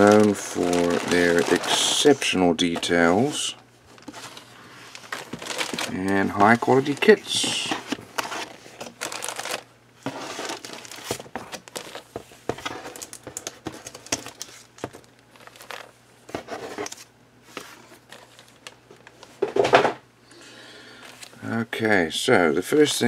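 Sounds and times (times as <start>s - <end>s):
plastic bags crinkling: 0.0s - 15.9s.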